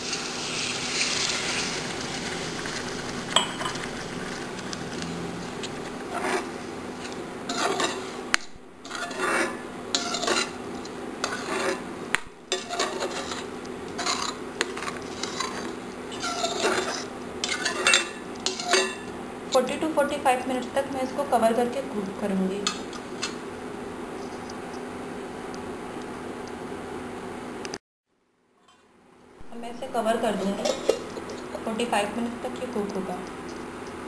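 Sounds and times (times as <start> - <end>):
water hissing in hot pan: 0.0 - 4.4
metal spatula scraping pan: 5.7 - 8.2, 8.8 - 10.6, 11.2 - 11.9, 12.5 - 19.1, 30.3 - 31.7.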